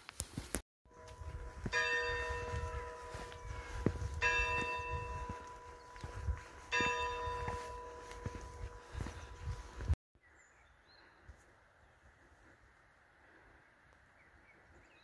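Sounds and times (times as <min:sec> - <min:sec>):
church bell tolling: 0:00.9 - 0:09.9.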